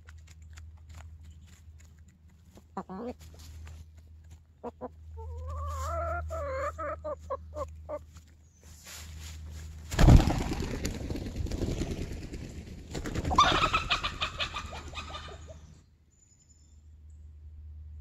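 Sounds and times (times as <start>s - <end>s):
hens squawking: 2.7s - 3.4s, 4.6s - 8.1s, 13.2s - 15.7s
chickens wing-flapping: 8.9s - 15.6s.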